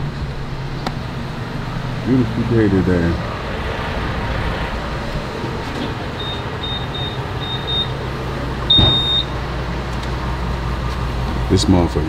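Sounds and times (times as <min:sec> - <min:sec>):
keypad beeping: 0:06.2 - 0:08.0, 0:08.7 - 0:09.3.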